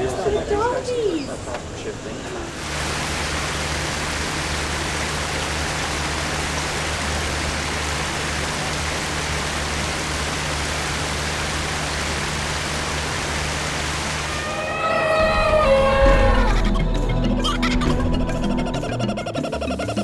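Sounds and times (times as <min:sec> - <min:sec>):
running water rushing: 0:02.5 - 0:16.3
low steady hum: 0:02.6 - 0:14.4.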